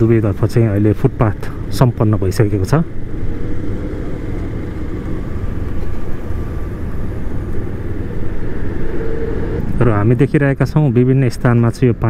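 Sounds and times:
motorcycle engine rumble: 0:00.0 - 0:12.0
road noise: 0:00.0 - 0:12.0.

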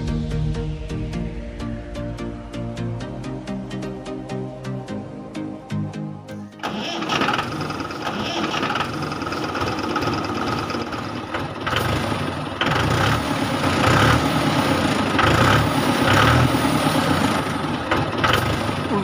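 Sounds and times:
tractor engine chugging: 0:06.6 - 0:19.0.

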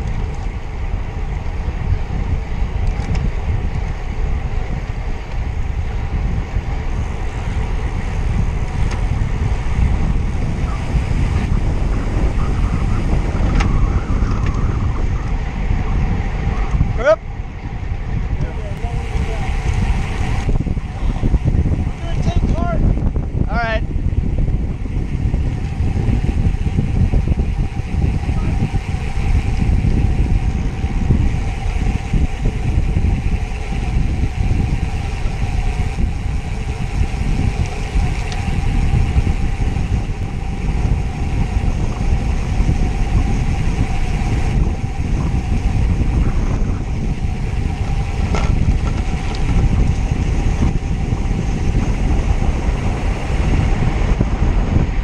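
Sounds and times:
wind buffeting microphone: 0:00.0 - 0:55.0
faint ticks: 0:37.6 - 0:38.5.

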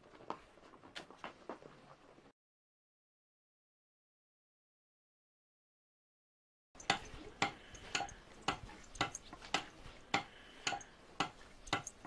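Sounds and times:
adze chopping wood: 0:06.9 - 0:11.9.

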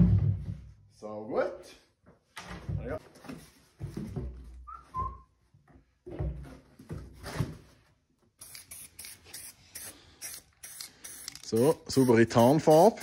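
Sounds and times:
spray paint can hissing bursts: 0:08.4 - 0:13.0.

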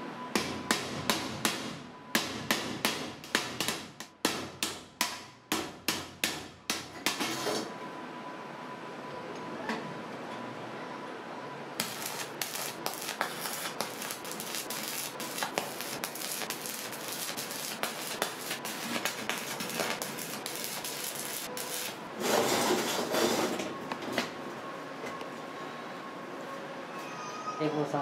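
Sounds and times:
welding arc crackling: 0:11.8 - 0:22.0.

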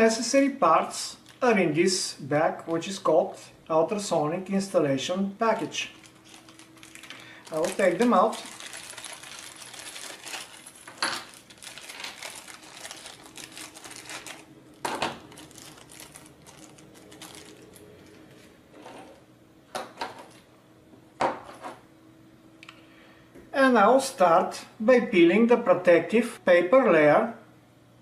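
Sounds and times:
plastic bag crinkling: 0:00.9 - 0:01.7, 0:05.4 - 0:18.5.

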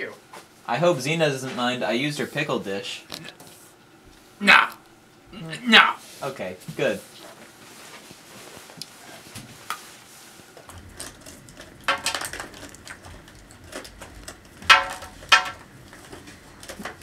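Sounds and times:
crayons rattling in plastic tub: 0:10.7 - 0:17.0.

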